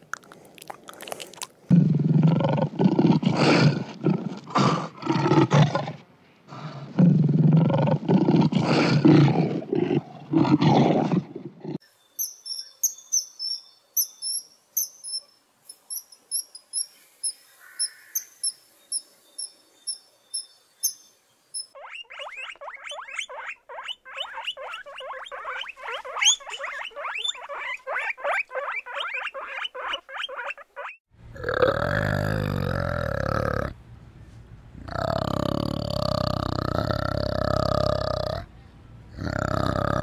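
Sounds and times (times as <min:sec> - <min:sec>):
orangutan deep grumbling call: 0:01.7 - 0:11.8, 0:31.3 - 0:33.8, 0:34.8 - 0:38.5, 0:39.1 - 0:40.0
high thin chirps: 0:12.1 - 0:21.8
guinea pigs squeaking: 0:21.6 - 0:31.0.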